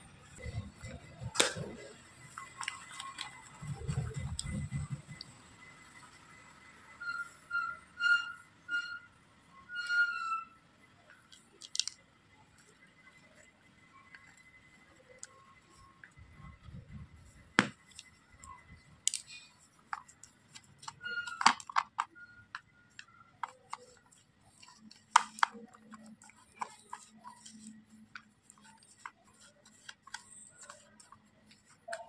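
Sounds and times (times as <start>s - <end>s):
plastic spatula scraping a plastic pot: 17.9s - 32.0s.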